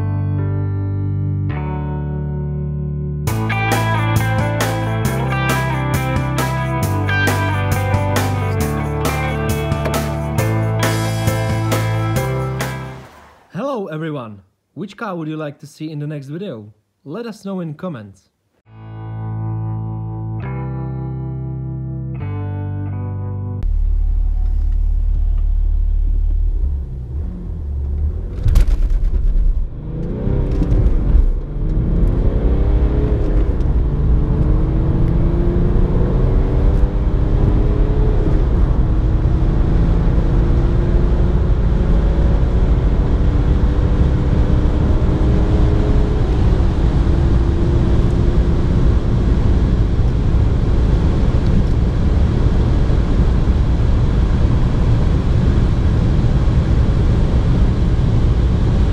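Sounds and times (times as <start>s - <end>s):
car engine accelerating: 3.3s - 13.5s, 23.6s - 58.9s
road noise rumble: 23.6s - 58.9s.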